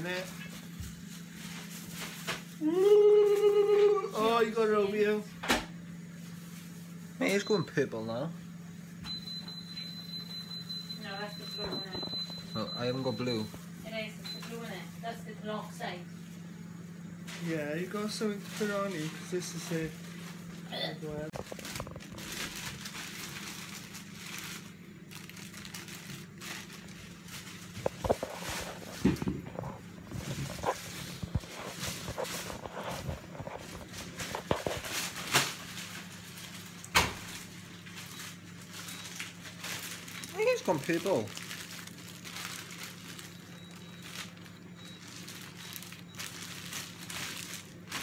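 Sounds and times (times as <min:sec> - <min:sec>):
plastic bag crinkling: 0:17.4 - 0:20.6, 0:21.2 - 0:48.0.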